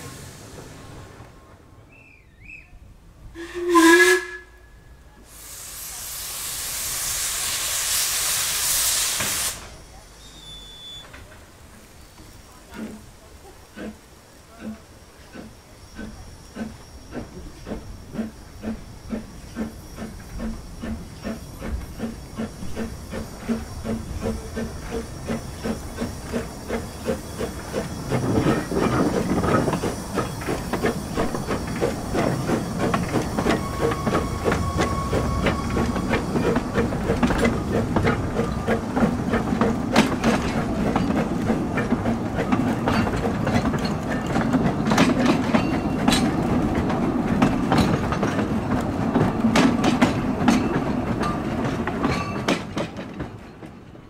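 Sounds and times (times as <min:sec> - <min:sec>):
hissing steam: 0:00.0 - 0:02.1, 0:03.4 - 0:53.1
steam locomotive exhaust beats: 0:03.3 - 0:54.0
wheels clicking over rail joints: 0:10.8 - 0:54.0.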